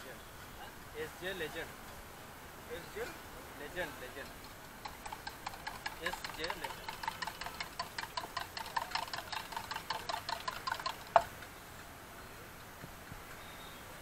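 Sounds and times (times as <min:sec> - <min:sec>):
low steady hiss: 0:00.0 - 0:14.0
spoon beating in steel mug: 0:04.9 - 0:11.3.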